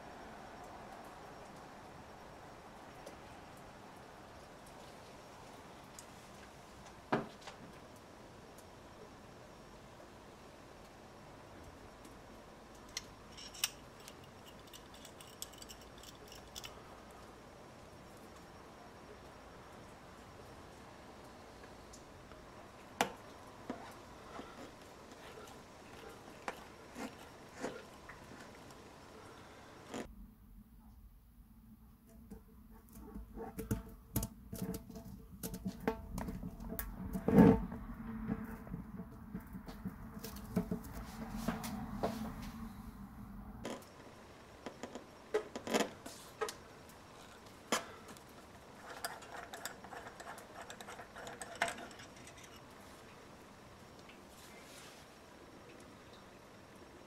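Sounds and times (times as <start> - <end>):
low hum: 35.2 - 44.5
tools scraping tyre rubber: 48.7 - 52.7.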